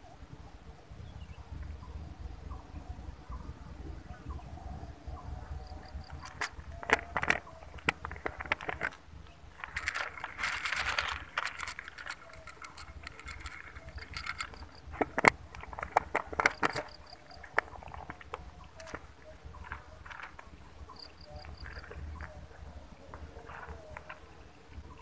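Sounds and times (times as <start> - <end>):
kibble rattling in plastic container: 5.8 - 18.2
kibble pattering into foil tray: 9.6 - 17.3.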